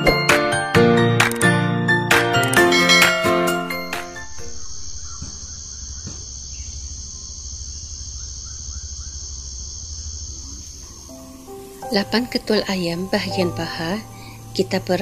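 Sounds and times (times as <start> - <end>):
high insect drone: 3.7 - 15.0.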